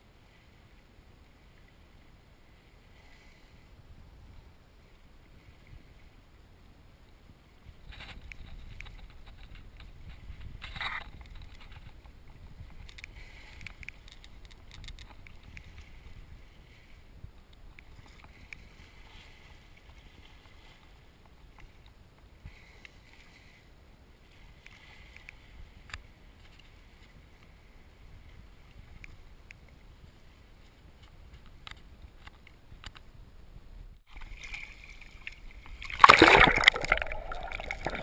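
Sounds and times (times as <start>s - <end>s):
wind rumble on microphone: 3.5s - 22.6s, 25.4s - 34.1s
waves lapping against boat hull: 7.7s - 23.7s, 34.0s - 38.0s
faint clicks and trickles of water: 7.9s - 16.2s, 34.0s - 38.0s
water splash: 34.1s - 38.0s.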